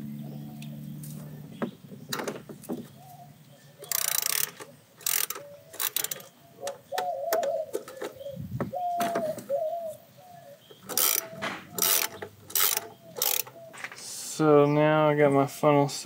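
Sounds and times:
ratchet wrench clicking: 3.8s - 6.3s, 10.8s - 13.6s
metallic clicks and knocks: 3.8s - 8.2s, 10.7s - 14.0s.

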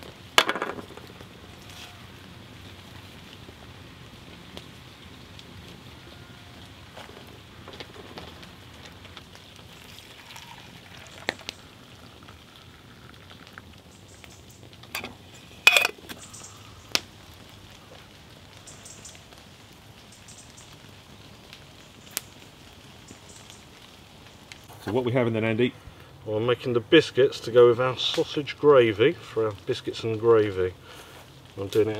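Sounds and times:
rain on leaf litter: 0.0s - 31.9s
metal camp pots clinking: 14.8s - 16.3s.

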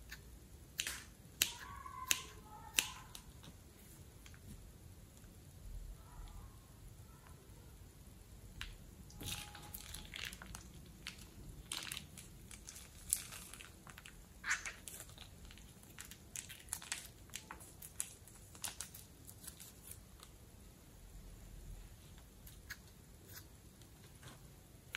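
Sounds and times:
plastic bag crinkling: 9.2s - 20.2s.

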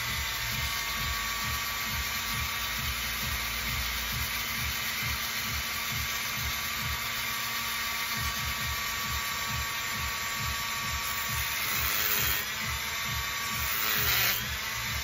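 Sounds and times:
rotary tool grinding shell: 0.0s - 15.0s.

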